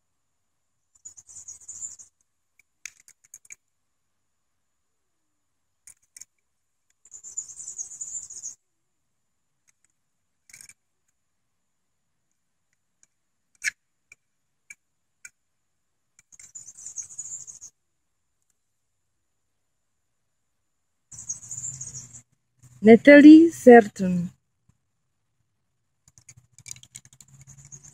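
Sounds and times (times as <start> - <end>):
toy car clicks and taps: 2.6 - 3.6, 5.8 - 7.0, 9.6 - 10.8, 13.0 - 15.4, 16.2 - 16.6, 26.0 - 27.9.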